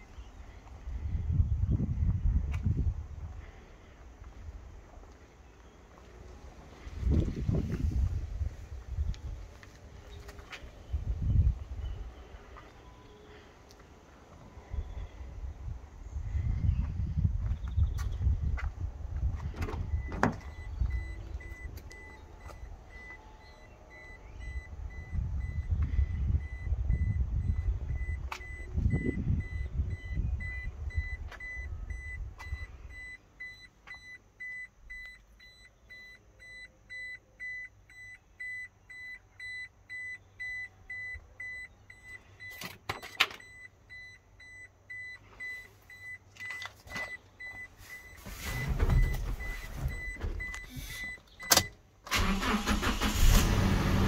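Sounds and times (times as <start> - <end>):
low rumble: 14.5 - 33.0
car warning chime beeping: 19.8 - 53.2.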